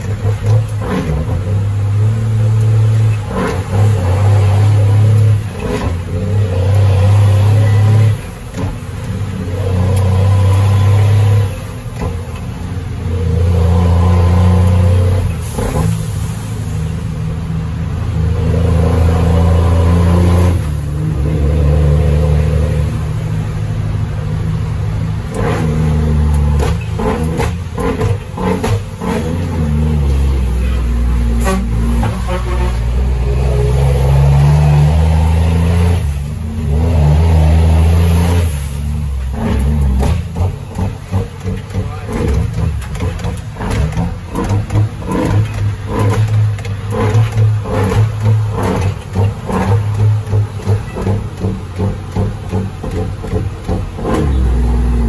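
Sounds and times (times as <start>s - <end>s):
diesel truck engine shifting gears: 0.0s - 55.0s.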